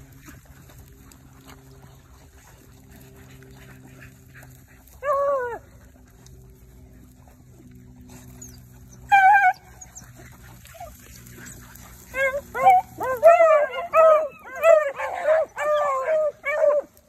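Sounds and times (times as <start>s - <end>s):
dog yelping bays: 9.0s - 10.1s, 12.1s - 16.9s.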